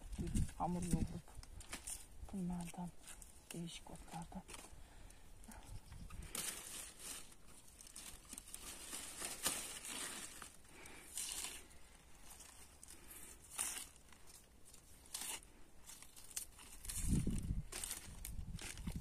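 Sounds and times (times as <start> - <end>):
leaves rustling: 0.0 - 19.0
plant stalks tearing: 5.8 - 19.0.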